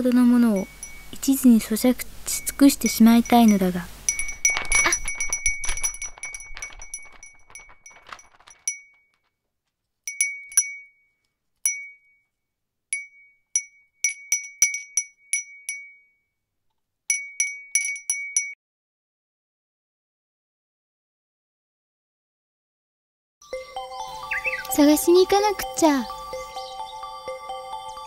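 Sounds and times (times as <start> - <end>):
high chime strikes: 0.2 - 7.0.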